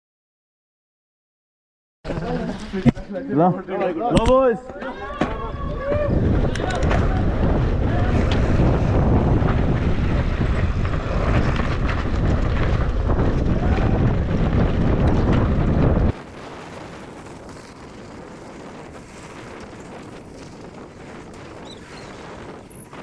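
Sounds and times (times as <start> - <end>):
wind buffeting microphone: 4.1 - 23.0
bike rattling over stones: 6.3 - 23.0.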